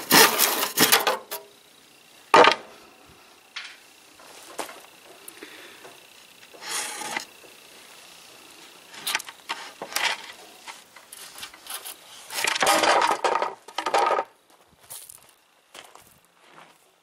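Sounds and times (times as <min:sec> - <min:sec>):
wood clatter and rustle: 0:02.3 - 0:02.6, 0:09.0 - 0:14.4.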